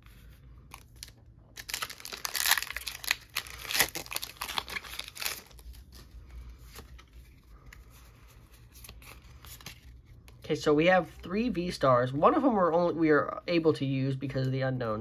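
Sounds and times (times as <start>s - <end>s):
foil wrapper crinkling and tearing: 0.7s - 7.2s.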